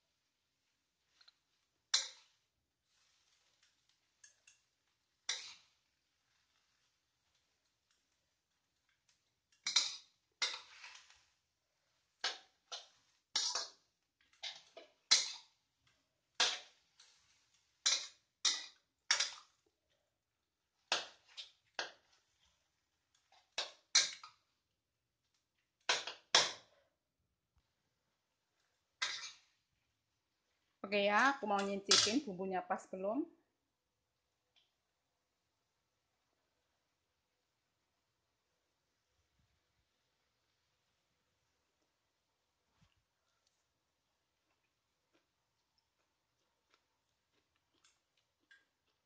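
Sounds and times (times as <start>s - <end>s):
steel spatula scraping wok: 1.9s - 8.0s, 9.5s - 15.6s, 16.4s - 19.5s, 29.0s - 29.5s.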